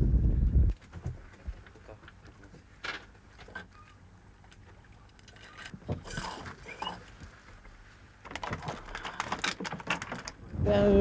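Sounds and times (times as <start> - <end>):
small clicks and rattles: 8.2 - 10.4.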